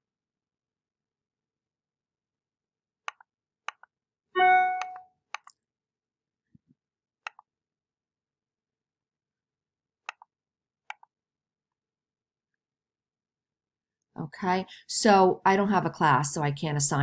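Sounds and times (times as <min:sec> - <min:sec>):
computer mouse clicks: 0:03.0 - 0:03.9, 0:04.8 - 0:05.6, 0:07.2 - 0:07.5, 0:10.0 - 0:11.1
notification chime: 0:04.4 - 0:05.0.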